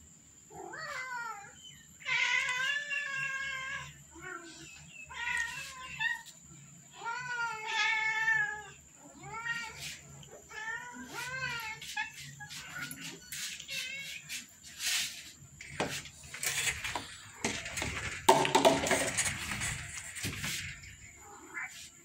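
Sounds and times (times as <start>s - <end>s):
cats meowing: 0.5s - 15.1s, 19.4s - 22.0s.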